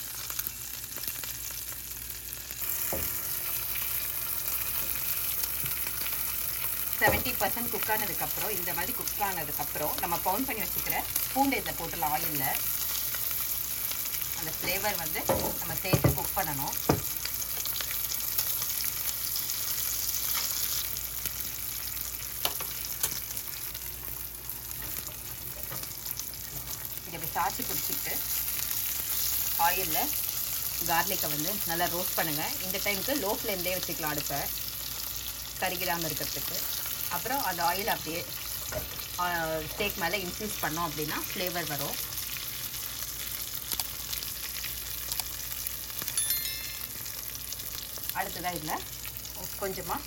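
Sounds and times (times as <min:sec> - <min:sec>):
steak sizzling in oil: 0:00.0 - 0:50.0.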